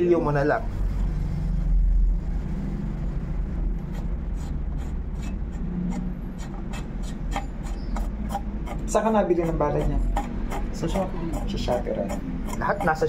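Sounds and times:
steady low hum: 0.0s - 13.0s
metallic ticks and rasps of tool: 3.9s - 13.0s.

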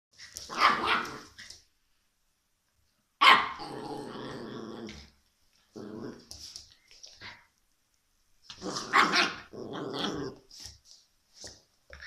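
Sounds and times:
puppy play growl: 0.2s - 1.6s, 3.5s - 7.5s, 8.5s - 10.8s
puppy barks: 0.5s - 1.4s, 3.2s - 3.7s, 8.7s - 9.5s.

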